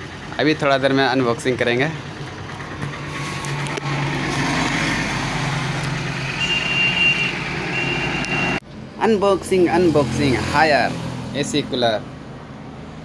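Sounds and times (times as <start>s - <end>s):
vehicle engine running: 0.0s - 7.8s
street noise: 0.0s - 13.0s
high steady beep: 6.4s - 8.6s.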